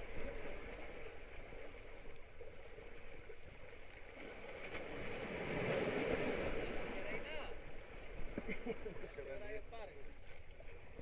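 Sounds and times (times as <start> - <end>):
small waves breaking over rocks: 0.0 - 11.0.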